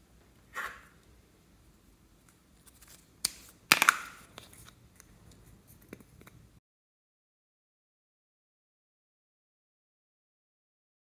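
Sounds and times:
plastic cup snapping open: 2.7 - 5.1.

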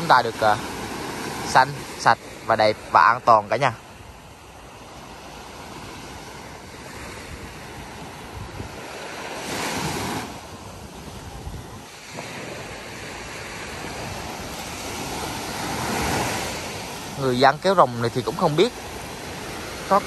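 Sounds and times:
surf washing onto beach: 0.0 - 20.0
wind on microphone: 5.7 - 17.5.

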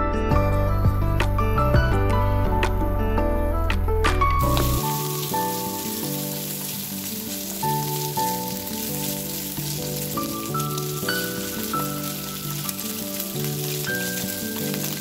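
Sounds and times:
background music: 0.0 - 15.0
food sizzling in hot oil: 4.4 - 15.0.

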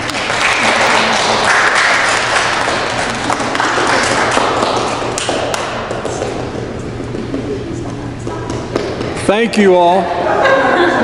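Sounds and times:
small group applauding: 0.0 - 6.2.

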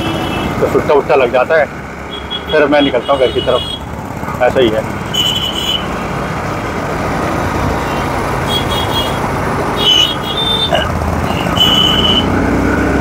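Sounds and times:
motorcycle engine: 0.0 - 13.0
high-pitched horn beeps: 5.1 - 5.9, 9.8 - 12.4.

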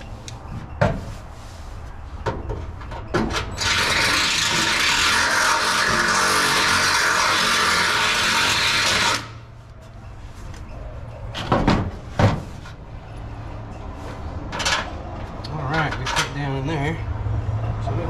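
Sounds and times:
cordless drill reaming metal: 3.6 - 9.4.

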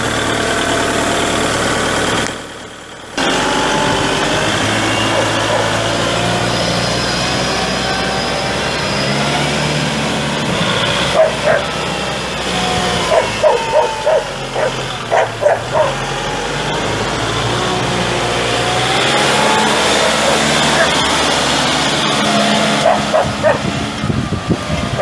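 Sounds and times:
tractor diesel engine running: 0.0 - 25.0
dog barking: 5.0 - 5.9, 11.1 - 11.8, 12.9 - 16.1, 20.2 - 21.1, 22.8 - 23.7.

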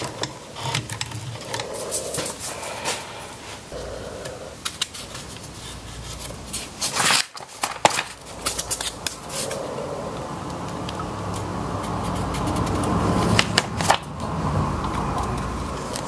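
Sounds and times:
wooden stick scraping glue: 10.5 - 16.0.

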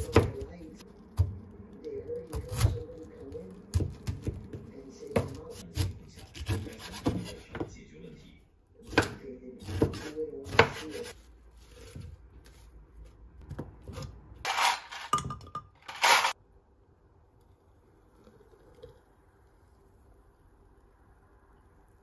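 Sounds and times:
knife chopping on wooden board: 3.7 - 7.7, 8.8 - 11.1
kitchenware clinking and clattering: 13.9 - 16.4.

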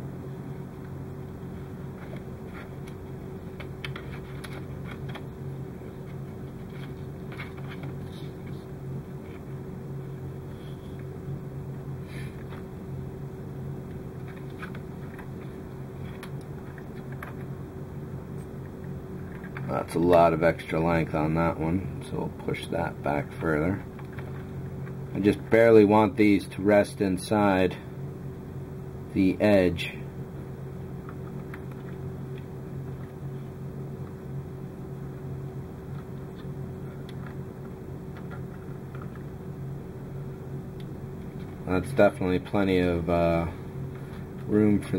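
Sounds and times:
steady low hum: 0.0 - 44.9
faint clicks and rustles of wires: 0.8 - 12.8, 13.8 - 17.6, 18.3 - 26.6, 30.9 - 34.2, 35.8 - 39.4, 40.7 - 44.9.

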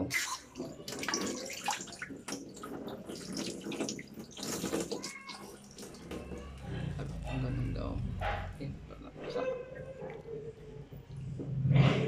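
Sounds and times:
tap water running and splashing: 0.0 - 6.6.

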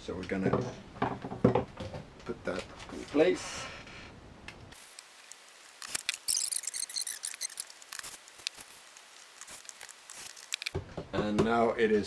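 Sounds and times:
small clicks taps and scrapes: 9.4 - 10.8.

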